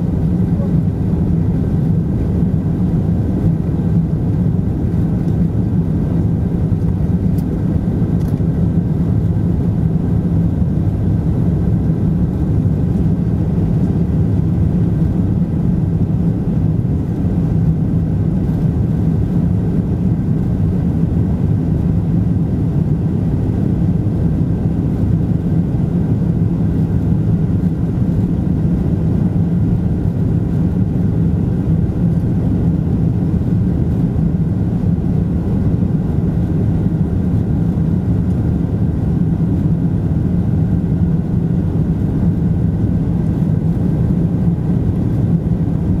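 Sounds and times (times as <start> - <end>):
jet engines droning: 0.0 - 46.0.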